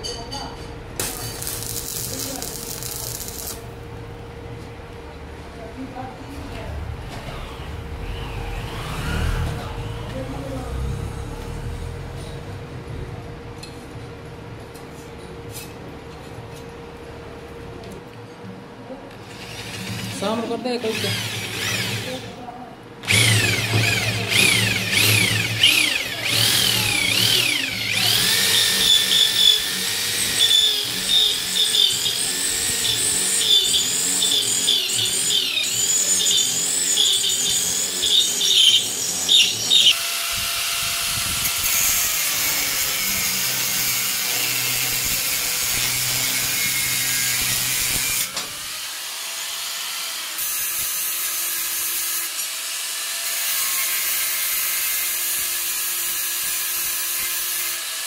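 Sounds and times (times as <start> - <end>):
power tool working metal: 1.0 - 3.7, 7.1 - 12.4, 19.2 - 22.4, 23.0 - 58.0.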